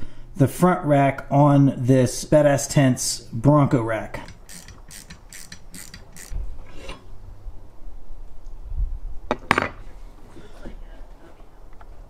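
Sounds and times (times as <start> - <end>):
ratchet wrench clicking: 4.2 - 6.4.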